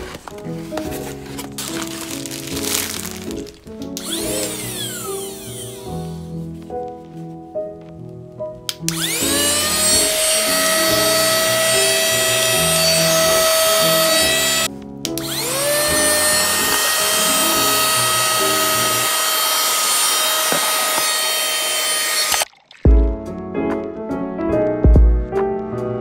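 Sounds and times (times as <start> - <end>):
handheld vacuum cleaner whining: 3.9 - 6.3, 8.8 - 22.5.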